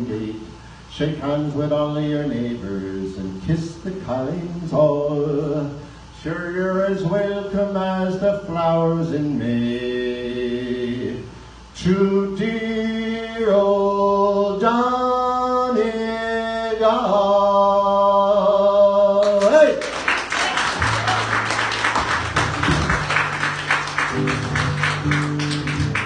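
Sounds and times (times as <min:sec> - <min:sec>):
man singing unaccompanied: 0:00.0 - 0:19.8
fast strumming music: 0:20.8 - 0:26.0
steady bass notes: 0:22.2 - 0:26.0.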